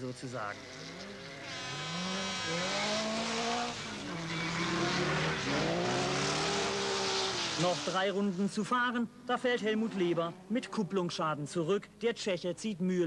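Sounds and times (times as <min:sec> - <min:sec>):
race car engines revving: 0:00.0 - 0:08.4, 0:09.4 - 0:11.2.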